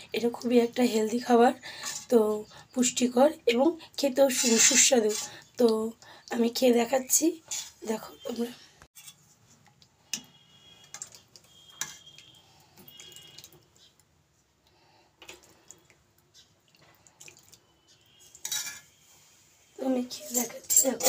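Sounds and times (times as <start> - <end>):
soup splashing: 4.3 - 5.7, 9.7 - 14.0, 15.2 - 19.0.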